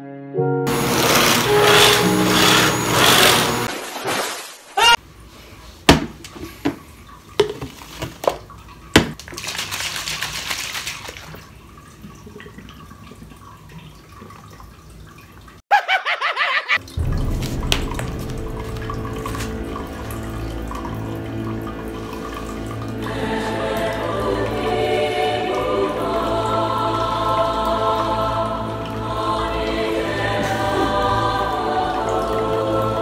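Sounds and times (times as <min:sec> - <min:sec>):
background music: 0:00.0 - 0:03.7, 0:16.8 - 0:33.0
vacuum cleaner running: 0:00.7 - 0:03.7
water splashing: 0:01.4 - 0:05.0, 0:06.0 - 0:15.6, 0:16.8 - 0:33.0
cup and tubs clicking: 0:07.4 - 0:08.4.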